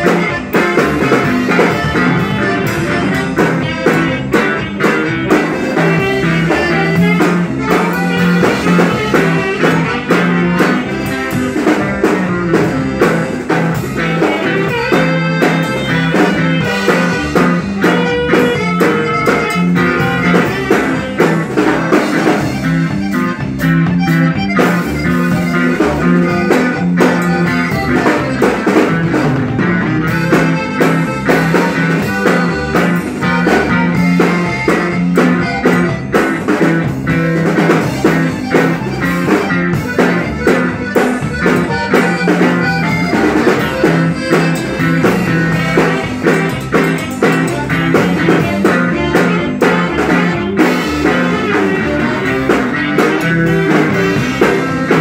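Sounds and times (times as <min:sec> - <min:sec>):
amplified guitar: 0:00.0 - 0:55.0
drum kit beat: 0:00.0 - 0:55.0.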